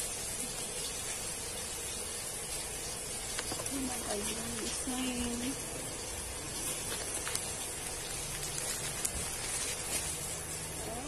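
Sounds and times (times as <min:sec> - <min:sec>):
plastic packaging rustling: 0:00.0 - 0:11.0
steady hiss: 0:00.0 - 0:11.0.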